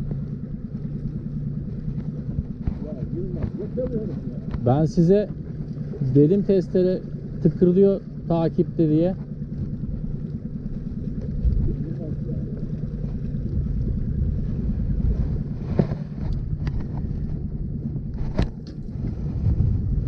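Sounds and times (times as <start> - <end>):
boat motor running: 0.0 - 20.0
wind on microphone: 11.1 - 20.0.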